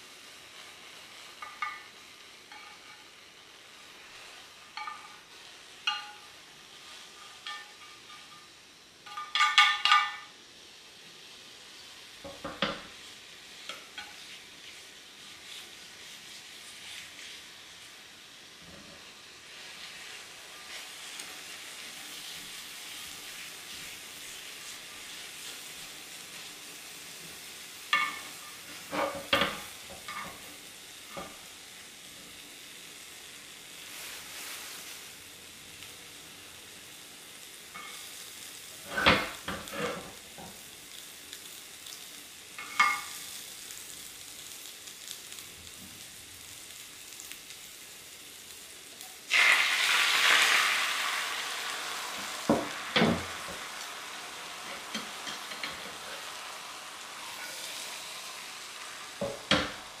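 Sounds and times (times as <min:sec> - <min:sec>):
egg sizzling in a pan: 0:00.0 - 1:00.0
pan and chopsticks knocking: 0:05.8 - 0:06.3, 0:07.4 - 0:08.3, 0:09.1 - 0:10.3.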